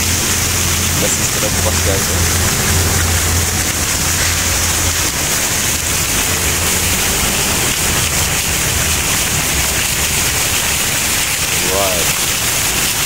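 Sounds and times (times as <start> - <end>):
low hum: 0.0 - 8.2
loud rushing noise: 0.0 - 10.4.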